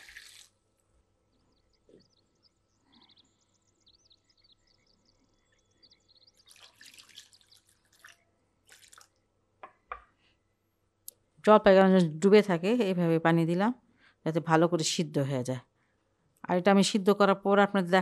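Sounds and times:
water drips and plinks: 0.0s - 0.5s, 6.4s - 9.8s
water pouring into a pot: 0.0s - 0.5s, 6.4s - 9.2s
small knocks: 9.6s - 10.2s.

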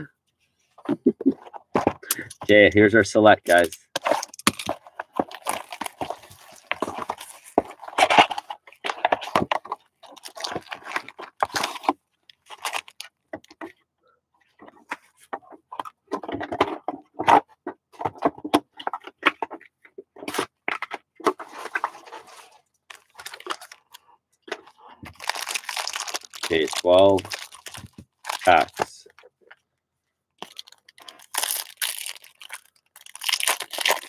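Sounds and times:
foil card packs handled: 3.5s - 13.7s, 20.2s - 29.0s, 30.4s - 34.0s
plastic shrink-wrap crinkling and tearing: 3.6s - 9.0s, 10.1s - 13.2s, 22.9s - 23.8s, 25.1s - 28.8s, 30.4s - 34.0s
cardboard box being opened: 4.0s - 13.0s.

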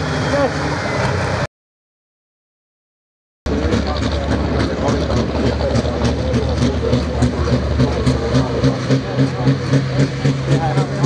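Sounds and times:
diesel tractor engine throbbing: 3.5s - 11.0s.

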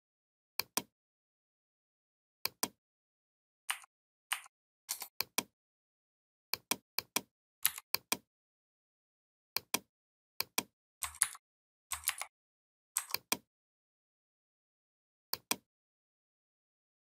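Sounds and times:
mouse and keyboard clicking: 3.7s - 5.5s, 6.6s - 8.2s, 9.6s - 12.3s, 13.0s - 13.4s, 15.4s - 15.6s.

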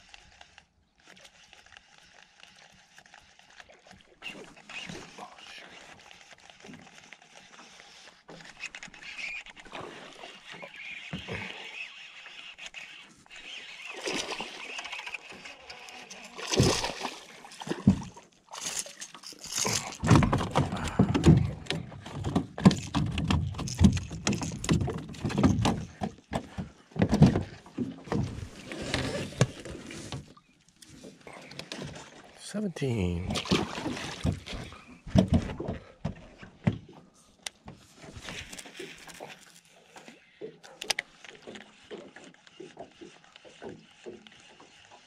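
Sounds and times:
fish splashing at surface: 13.5s - 18.8s
fish thrashing in metal boat: 15.7s - 30.3s, 33.2s - 39.3s.

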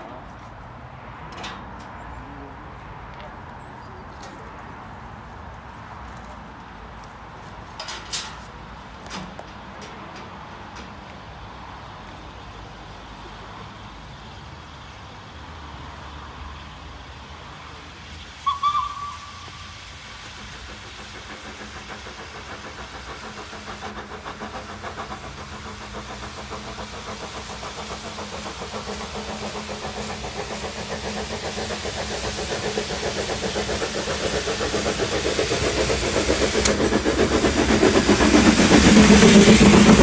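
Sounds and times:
steam locomotive exhaust beats: 0.2s - 40.0s
steam locomotive whistle: 18.4s - 20.0s.

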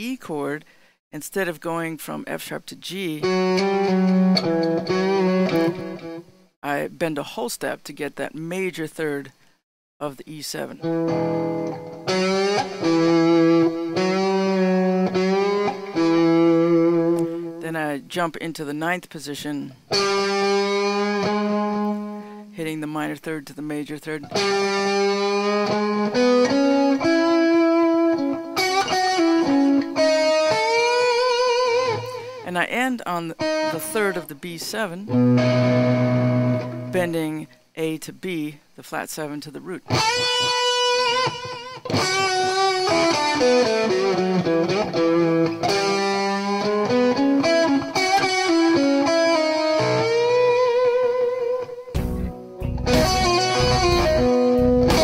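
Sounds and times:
electric guitar blues lick: 3.2s - 6.4s, 10.8s - 17.6s, 19.8s - 22.5s, 24.2s - 32.5s, 33.2s - 37.6s, 39.8s - 55.0s.

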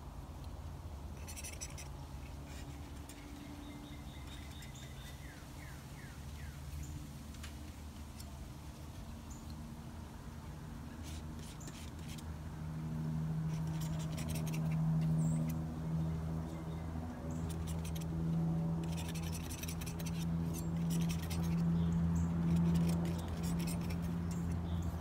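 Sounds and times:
distant low motor hum: 0.0s - 25.0s
fast high clicking: 18.7s - 24.7s.

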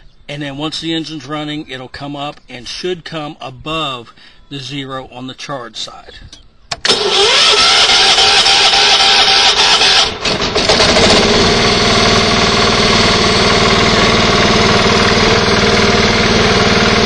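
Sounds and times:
electric starter cranking: 6.7s - 17.0s
tractor engine running: 6.8s - 17.0s.

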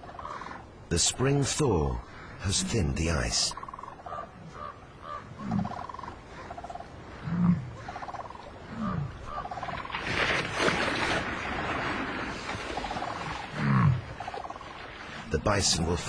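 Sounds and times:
bison grunting: 2.2s - 3.4s, 4.1s - 8.0s, 8.6s - 9.5s, 12.9s - 14.1s.

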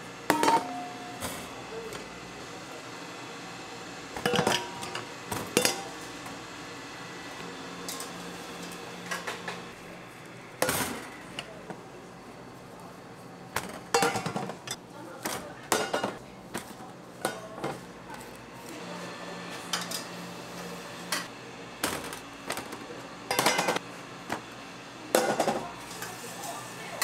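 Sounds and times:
utensils and dishes clinking: 0.3s - 1.5s, 4.2s - 6.0s, 13.7s - 14.8s, 15.7s - 16.2s, 23.3s - 23.8s, 25.2s - 27.0s.

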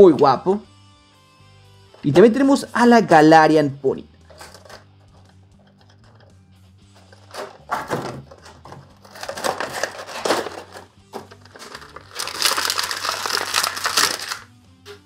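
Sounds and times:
plastic packaging crinkling: 8.3s - 14.5s.

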